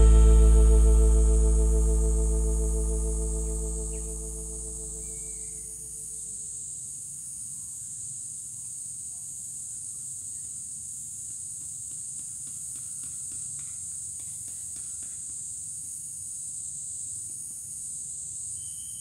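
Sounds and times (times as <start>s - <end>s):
insect chorus drone: 0.0s - 11.3s, 15.4s - 19.0s.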